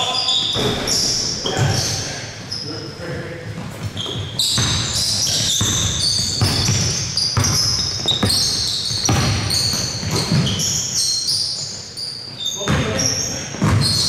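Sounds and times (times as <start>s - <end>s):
sneakers squeaking: 0.0s - 14.0s
basketball bouncing: 0.6s - 1.9s, 3.6s - 10.8s, 12.6s - 14.0s.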